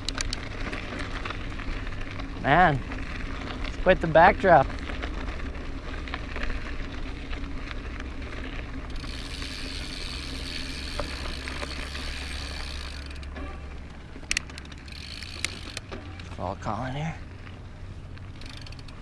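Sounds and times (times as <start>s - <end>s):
bike freehub buzzing: 0.0s - 19.0s
rumble of tyres and wind: 0.0s - 19.0s
sharp clicks: 14.2s - 16.4s.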